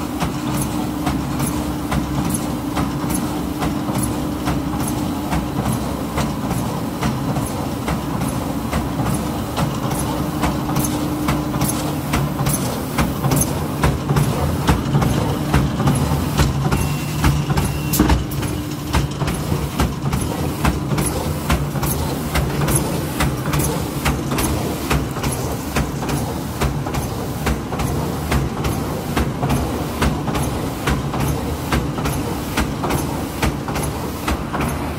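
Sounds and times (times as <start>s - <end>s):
machine clacking: 0.2s - 34.9s.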